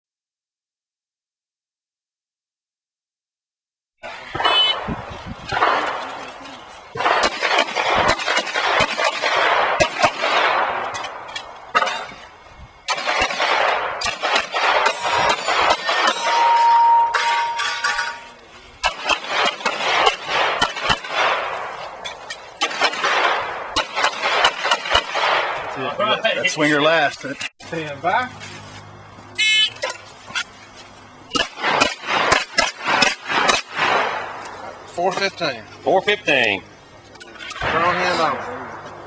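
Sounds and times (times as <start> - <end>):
pistol shots echoing: 5.5 - 6.2, 6.9 - 12.2, 12.8 - 16.6, 18.8 - 25.8, 31.3 - 34.8.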